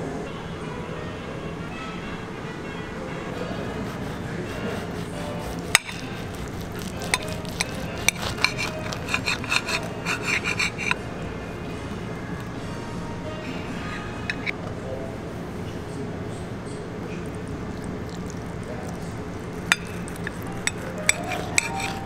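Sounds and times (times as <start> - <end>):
steady background hum: 0.0 - 22.0
knife scraping and clinking on plate: 3.4 - 11.0, 13.9 - 14.6, 19.6 - 22.0.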